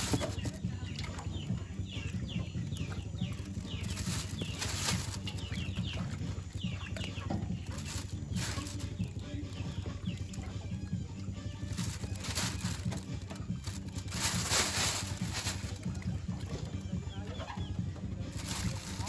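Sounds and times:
plastic bag crinkling: 0:00.0 - 0:00.6, 0:03.3 - 0:06.1, 0:07.6 - 0:09.1, 0:11.6 - 0:16.1, 0:18.3 - 0:19.0
birds chirping: 0:00.0 - 0:19.0.

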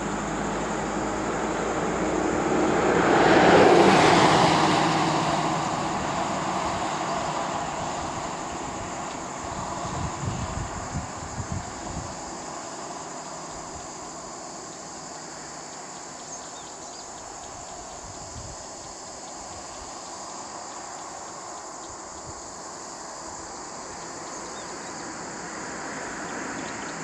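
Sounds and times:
low wind rumble on microphone: 0:00.0 - 0:15.1, 0:16.5 - 0:27.0
high-pitched insect chorus: 0:00.0 - 0:27.0.

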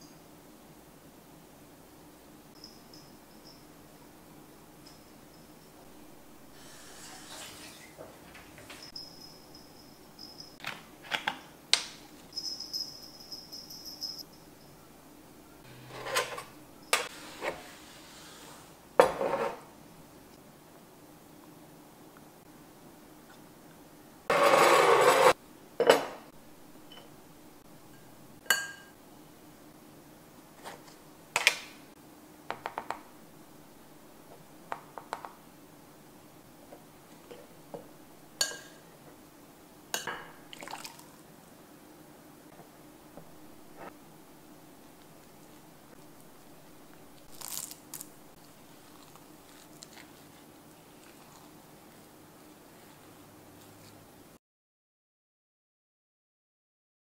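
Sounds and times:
spoon clinking glass bowl: 0:04.8 - 0:05.8, 0:27.9 - 0:28.9, 0:38.4 - 0:38.8.

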